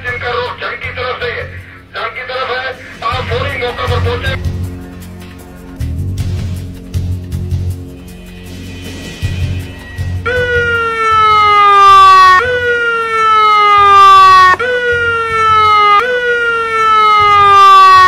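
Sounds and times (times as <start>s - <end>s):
police siren: 10.2s - 18.0s.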